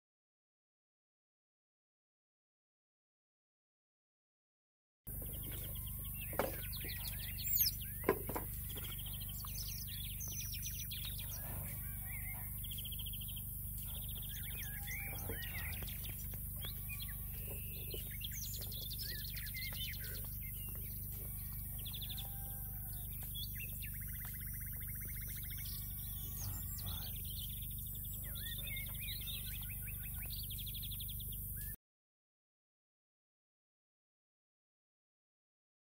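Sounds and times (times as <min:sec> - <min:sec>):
birds chirping and trilling: 0:05.1 - 0:31.8
sharp sweeping bird calls: 0:05.1 - 0:31.8
steady low hum: 0:05.1 - 0:31.8.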